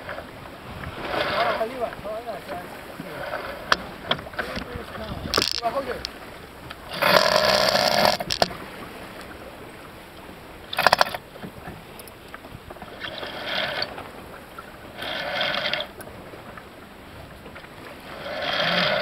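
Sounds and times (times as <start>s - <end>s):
deck winch ratcheting: 3.2s - 8.6s, 10.7s - 11.2s.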